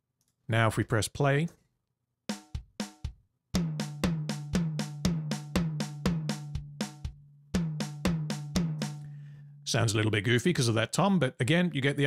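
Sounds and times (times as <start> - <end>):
drum machine beat: 2.3 - 9.1.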